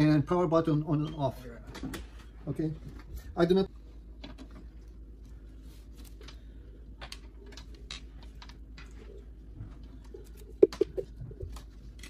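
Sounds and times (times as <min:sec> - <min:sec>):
clicks and rustles of handled parts: 0:04.2 - 0:10.8.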